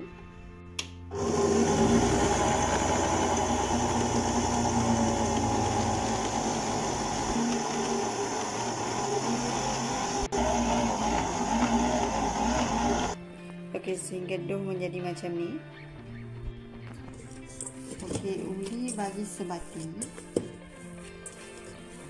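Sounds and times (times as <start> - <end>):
electric stand mixer running: 1.1 - 13.2.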